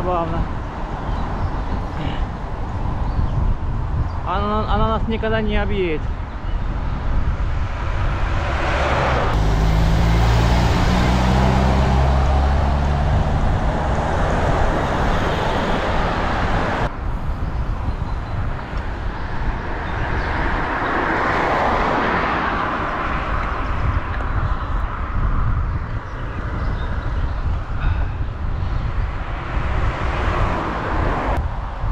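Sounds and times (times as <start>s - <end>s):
road and wind noise: 0.0s - 31.9s
traffic noise: 0.0s - 31.9s
truck diesel engine droning: 9.0s - 16.9s.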